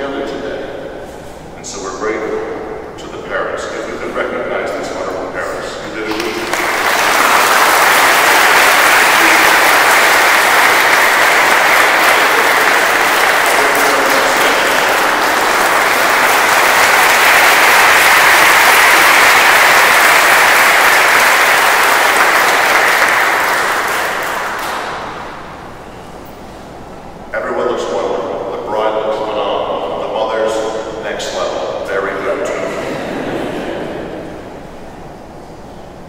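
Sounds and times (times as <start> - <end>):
crowd applauding: 6.0 - 25.6.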